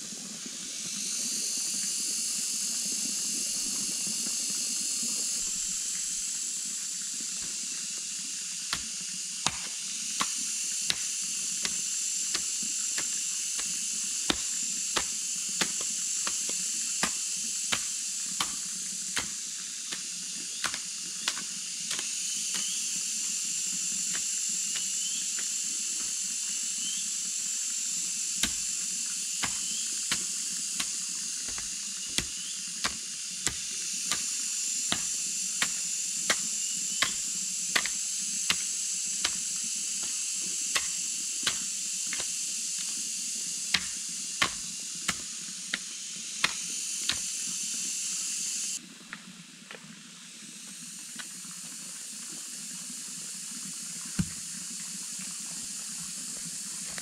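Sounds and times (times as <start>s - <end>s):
forest background hiss: 0.0s - 57.0s
tool knocking on bamboo: 8.7s - 13.7s, 14.3s - 18.6s, 20.6s - 22.7s, 29.4s - 34.3s, 34.9s - 39.4s, 43.7s - 47.3s
faint bird chirps: 24.8s - 25.4s, 26.8s - 27.1s, 29.6s - 30.0s.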